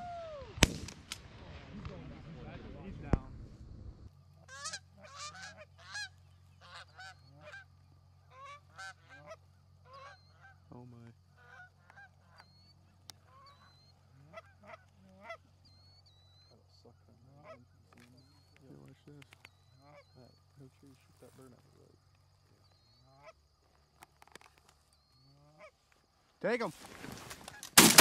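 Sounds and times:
geese honking: 0:04.3 - 0:18.5, 0:19.7 - 0:22.0.

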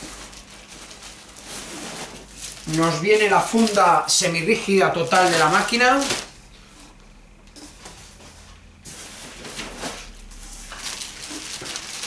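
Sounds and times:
plastic wrapping rustling in box: 0:00.0 - 0:06.4, 0:08.8 - 0:12.0.

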